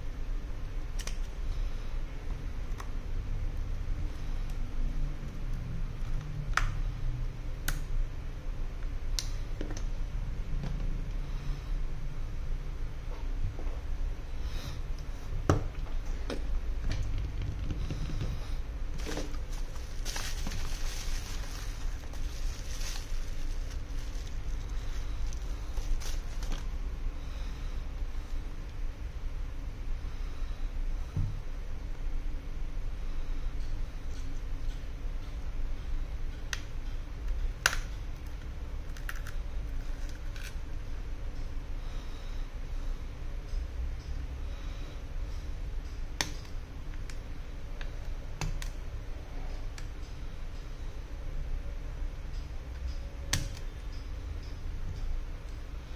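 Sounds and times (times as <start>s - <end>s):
steady low hum: 0.0s - 55.9s
bubble-wrap crinkling: 19.0s - 26.8s.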